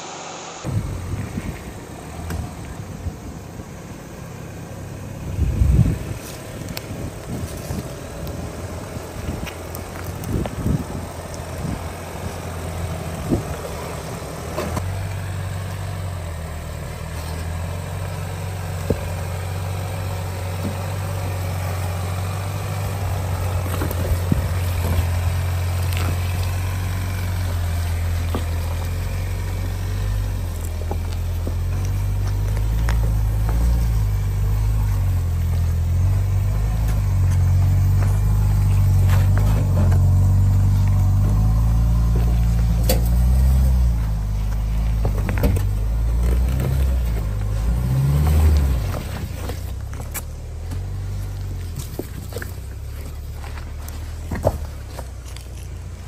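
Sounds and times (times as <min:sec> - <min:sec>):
engine running at low revs: 0:00.0 - 0:56.0
tyres crunching on stone: 0:17.0 - 0:56.0.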